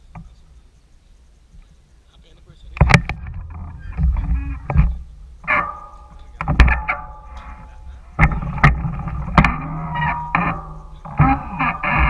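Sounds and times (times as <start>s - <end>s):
mountain bike rattling and clunking: 2.6s - 12.0s.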